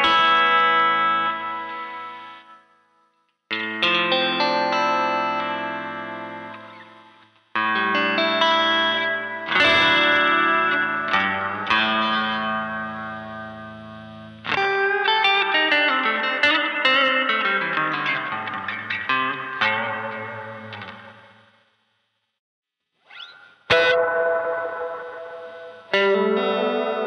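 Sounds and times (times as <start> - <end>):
electric guitar chords with reverb: 0.0 - 2.9, 3.5 - 21.6, 23.3 - 27.0.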